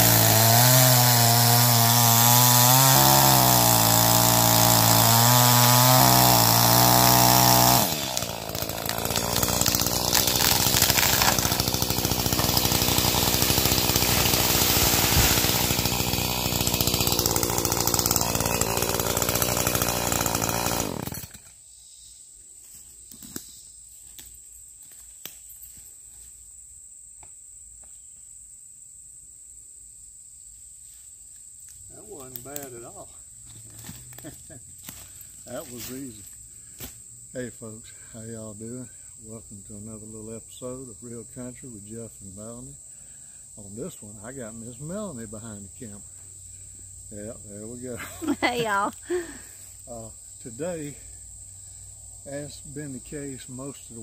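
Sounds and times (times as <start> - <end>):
chainsaw cutting tree trunk: 0.0 - 21.6, 33.5 - 37.0, 47.1 - 49.6
high insect drone: 8.4 - 54.0.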